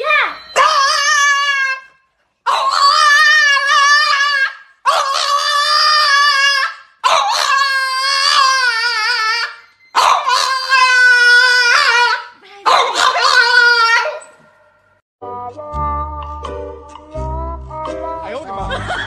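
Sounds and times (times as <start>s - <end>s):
dog howling: 0.4s - 1.9s, 2.5s - 14.3s.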